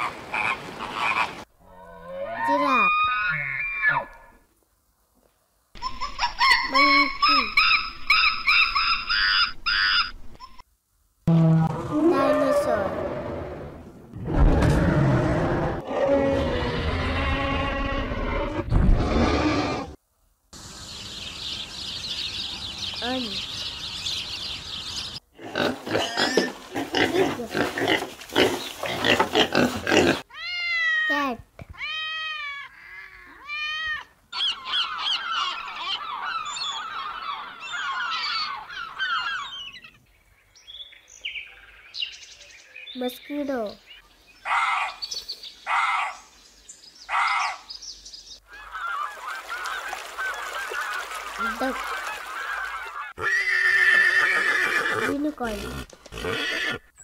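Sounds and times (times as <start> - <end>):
high background hiss: 3.0 - 11.2, 20.0 - 25.2
hoarse animal calls: 11.3 - 20.0
pigs grunting and squealing: 11.3 - 20.0, 25.4 - 30.3, 53.1 - 56.9
geese honking and cackling: 48.5 - 54.1
horse neighing: 53.2 - 56.9.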